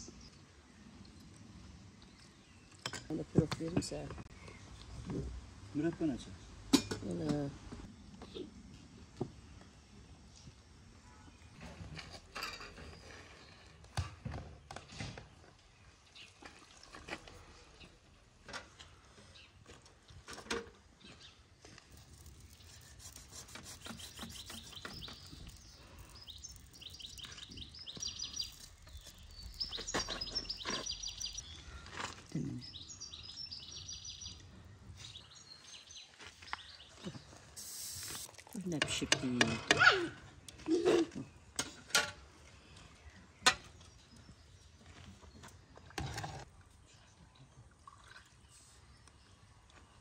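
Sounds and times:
songbird chirping trills: 0:22.2 - 0:38.2.

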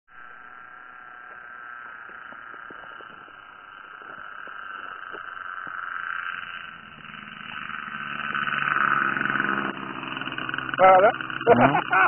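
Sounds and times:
model airplane engine buzzing: 0:00.2 - 0:12.0.

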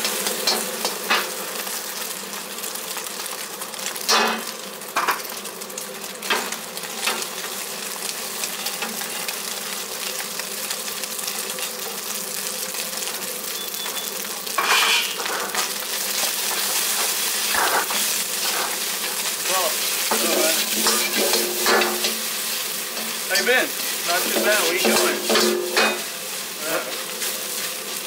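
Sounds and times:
rice and egg sizzling in a wok: 0:00.0 - 0:28.0
ladle scraping wok: 0:14.6 - 0:15.7, 0:16.4 - 0:28.0.

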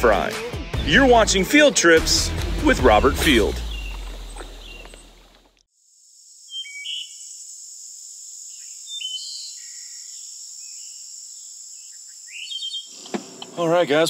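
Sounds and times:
bird chirps: 0:03.2 - 0:05.4, 0:06.5 - 0:07.3, 0:08.5 - 0:13.1
high-pitched insect drone: 0:03.2 - 0:12.6.

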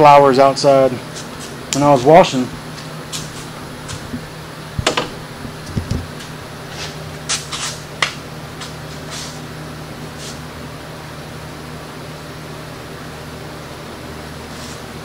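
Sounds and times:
steady low hum: 0:00.0 - 0:15.0
pipes and clamp clicking and knocking: 0:04.8 - 0:06.2.

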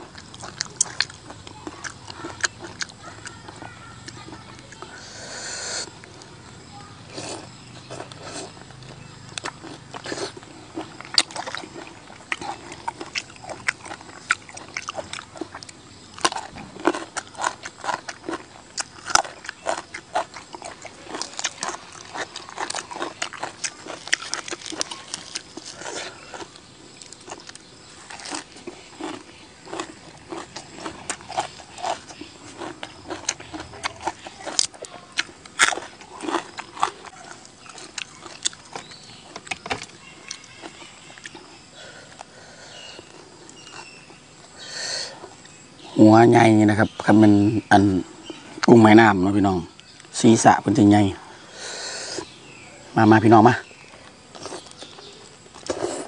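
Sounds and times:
chewing and lip-smacking: 0:00.0 - 0:05.1, 0:07.1 - 0:42.3, 0:42.9 - 0:44.5, 0:54.0 - 0:56.0.

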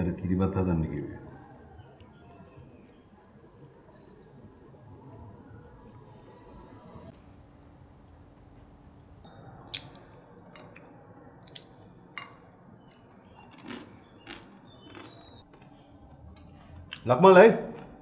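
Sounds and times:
people chewing food: 0:12.4 - 0:18.0.

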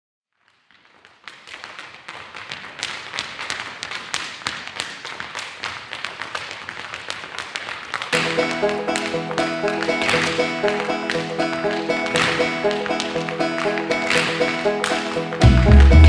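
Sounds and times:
clogs tapping on hard floor: 0:00.7 - 0:16.0
music with sustained notes: 0:08.2 - 0:16.0.

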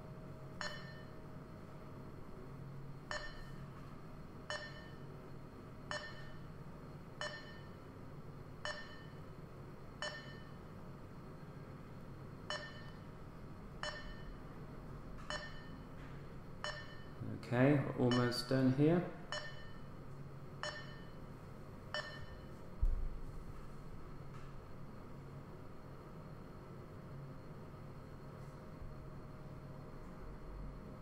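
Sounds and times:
low steady hum: 0:00.0 - 0:31.0
short electronic pings: 0:00.6 - 0:01.1, 0:03.1 - 0:03.6, 0:04.5 - 0:05.0, 0:05.9 - 0:06.4, 0:07.2 - 0:07.8, 0:08.7 - 0:09.2, 0:10.0 - 0:10.6, 0:12.5 - 0:13.0, 0:13.8 - 0:14.4, 0:15.3 - 0:15.8, 0:16.6 - 0:17.2, 0:19.3 - 0:19.9, 0:20.6 - 0:21.2, 0:22.0 - 0:22.5.

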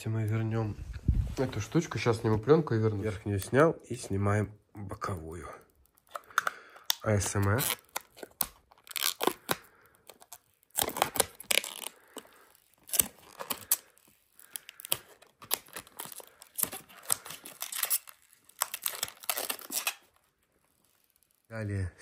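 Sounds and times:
plastic film peeling: 0:04.8 - 0:21.9.

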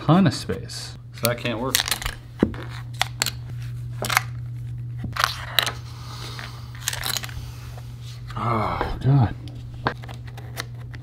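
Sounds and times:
steady low hum: 0:00.0 - 0:11.0
puzzle pieces clicking: 0:06.8 - 0:07.4.

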